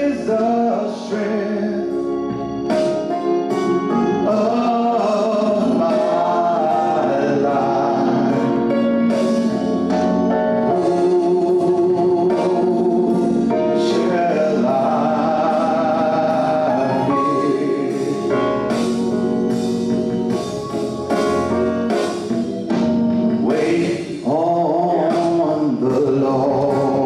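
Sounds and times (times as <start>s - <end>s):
man singing gospel: 0.0s - 2.3s, 3.5s - 18.8s, 23.4s - 27.0s
instrumental accompaniment: 0.0s - 27.0s.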